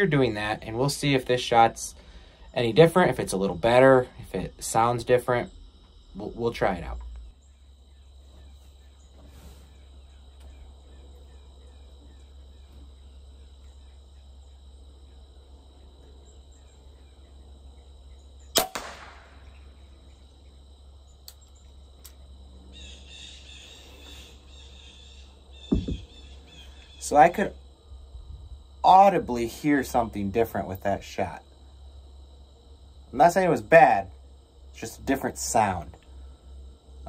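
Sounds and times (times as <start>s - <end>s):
crossbow firing crack: 18.5s - 19.6s.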